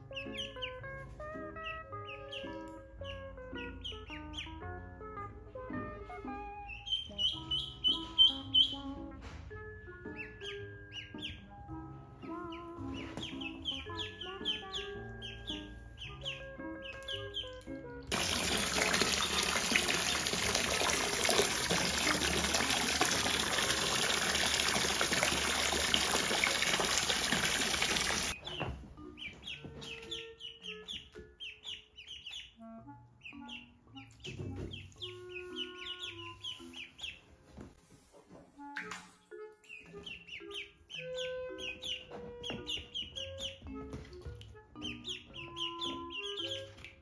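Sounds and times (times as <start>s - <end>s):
ducklings peeping: 0.0s - 4.9s, 6.3s - 9.2s, 10.0s - 11.6s, 12.2s - 37.3s, 39.6s - 47.0s
hose water splashing into pool: 18.1s - 28.4s.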